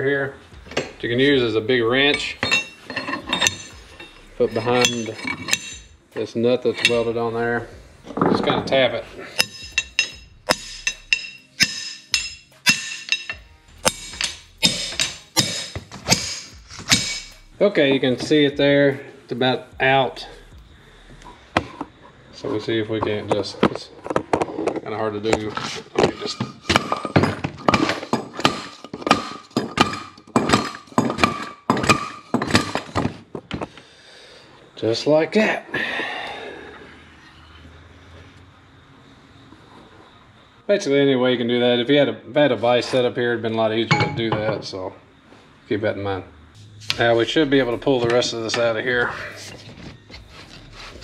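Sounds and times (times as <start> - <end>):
hammer striking metal shaft: 2.0 - 5.9, 9.4 - 17.5.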